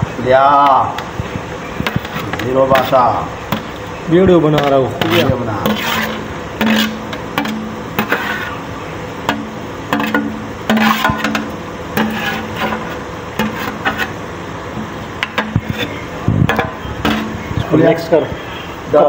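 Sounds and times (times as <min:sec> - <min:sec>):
metal ladle clanking and scraping: 0:01.8 - 0:03.8, 0:04.6 - 0:14.2, 0:14.8 - 0:17.8.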